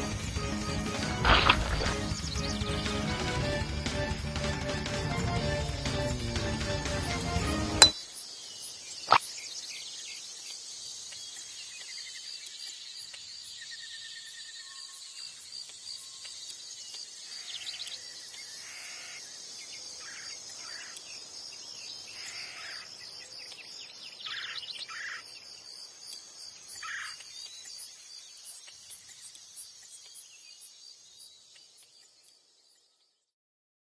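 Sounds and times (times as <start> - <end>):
crickets chorus: 7.9 - 33.1.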